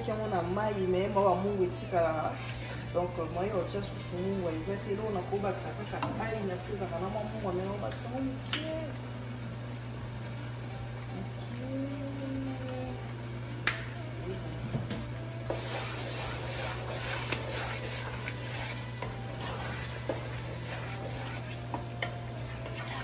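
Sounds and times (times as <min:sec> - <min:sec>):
wooden spoon stirring a pot: 0:00.0 - 0:08.1, 0:15.4 - 0:23.0
steady low hum: 0:00.0 - 0:23.0
stew bubbling: 0:15.4 - 0:23.0.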